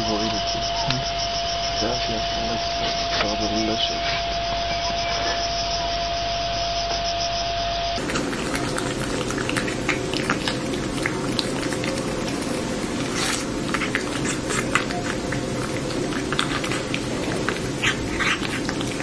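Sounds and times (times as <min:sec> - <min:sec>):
cat licking and chewing: 0:08.0 - 0:19.0.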